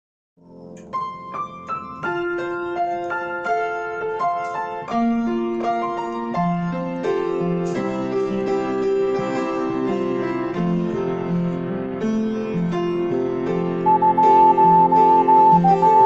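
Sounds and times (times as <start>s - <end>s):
slow piano melody: 0.4s - 16.0s.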